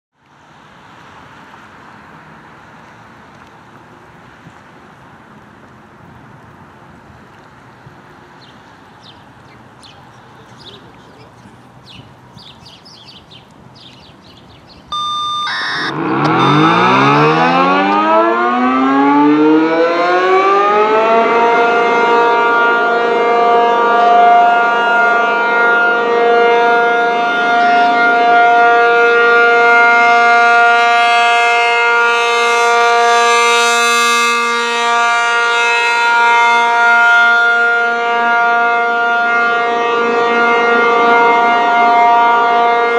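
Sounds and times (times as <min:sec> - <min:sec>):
rotating warning siren: 0:14.8 - 0:42.9
brief steady tone: 0:14.9 - 0:17.7.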